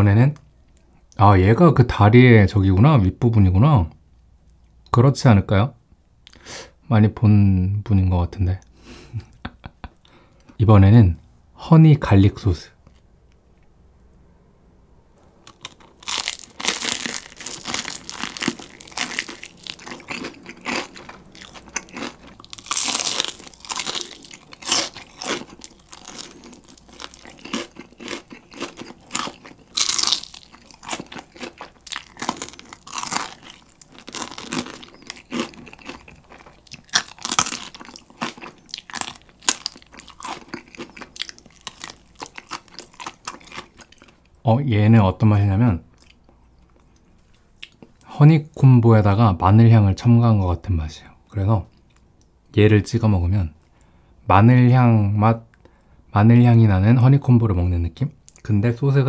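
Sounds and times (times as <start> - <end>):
crunchy chewing of fried chicken: 15.4 - 44.3.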